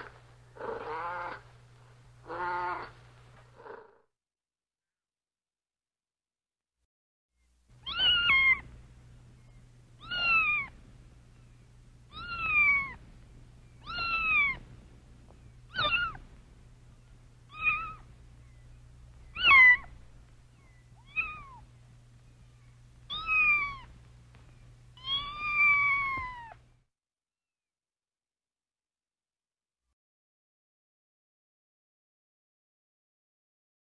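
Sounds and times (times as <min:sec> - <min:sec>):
cat meowing: 0:07.8 - 0:08.7, 0:10.0 - 0:10.8, 0:12.1 - 0:13.0, 0:13.8 - 0:14.7, 0:15.7 - 0:16.2, 0:17.5 - 0:18.1, 0:19.3 - 0:20.0, 0:21.0 - 0:21.7, 0:23.1 - 0:23.9, 0:25.0 - 0:26.6.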